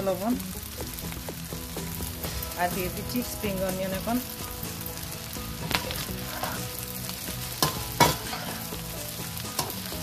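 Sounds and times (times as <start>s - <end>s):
rice sizzling in a pan: 0.0s - 10.0s
utensil scraping a pan: 5.6s - 7.0s, 7.6s - 10.0s.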